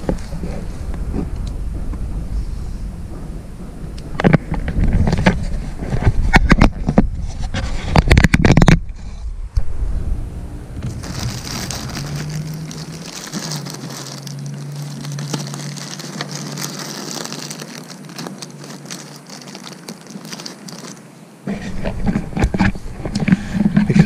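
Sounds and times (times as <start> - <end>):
plastic bag crinkling: 10.8 - 21.2.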